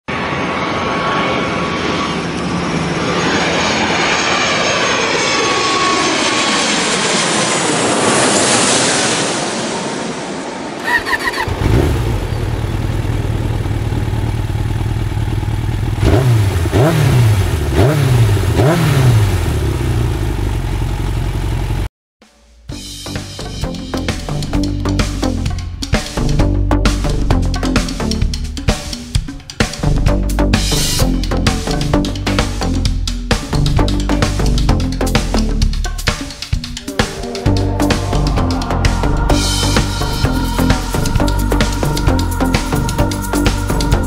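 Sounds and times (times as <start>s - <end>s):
rushing whoosh sweeping in pitch: 3.0s - 12.2s, 36.5s - 44.0s
motorcycle engine idling and revving: 10.8s - 21.9s, 22.6s - 36.6s, 37.5s - 44.0s.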